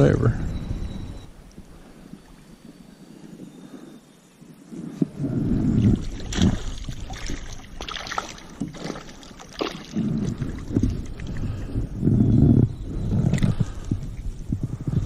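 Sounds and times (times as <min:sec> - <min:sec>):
wind on microphone: 0:00.0 - 0:15.0
fish splashing: 0:05.8 - 0:11.7.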